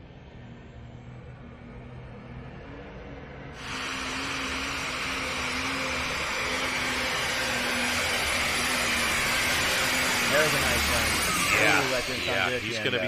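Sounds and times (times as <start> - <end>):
tractor engine roaring: 3.6 - 13.0.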